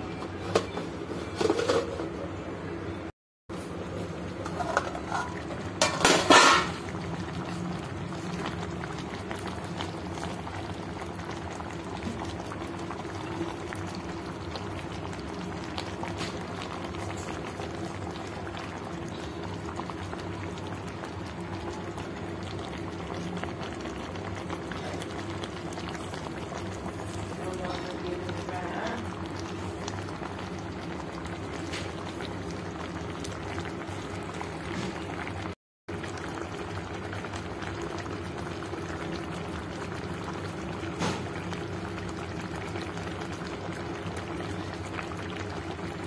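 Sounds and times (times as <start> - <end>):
metal pot lid clattering: 0.5 - 2.2, 4.4 - 6.8
curry bubbling in a pot: 3.5 - 46.0.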